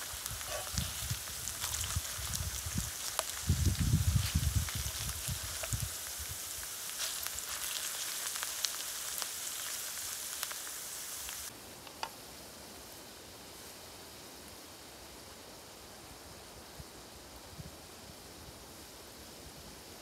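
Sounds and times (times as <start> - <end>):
potatoes sizzling in frying pan: 0.0 - 11.5
sharp crackles: 0.0 - 11.5.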